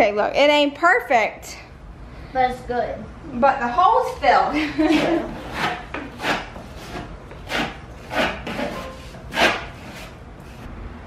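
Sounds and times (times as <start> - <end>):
putty knife scraping drywall: 4.9 - 10.7.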